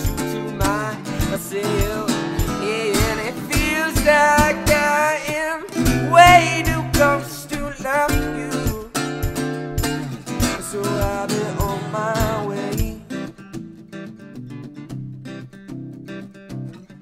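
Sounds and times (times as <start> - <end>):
drum beat thumping: 0.0 - 5.1, 5.8 - 13.1
man singing wordless runs: 0.0 - 13.3
strummed acoustic guitar: 0.0 - 17.0.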